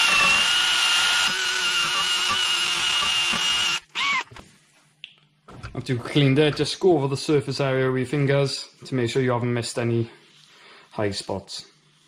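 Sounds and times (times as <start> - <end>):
drill with wire brush scraping rust: 0.0 - 4.3.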